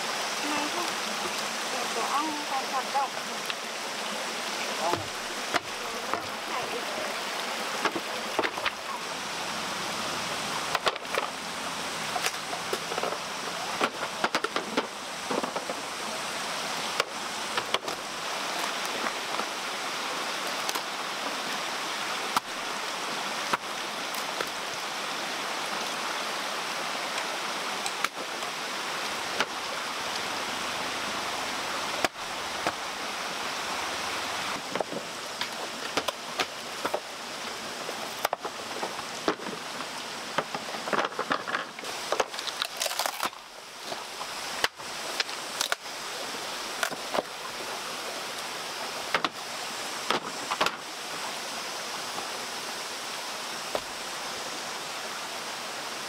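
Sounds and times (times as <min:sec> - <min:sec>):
creek water rushing: 0:00.0 - 0:56.0
bamboo poles knocking: 0:13.8 - 0:15.8, 0:34.6 - 0:37.1, 0:38.2 - 0:42.4.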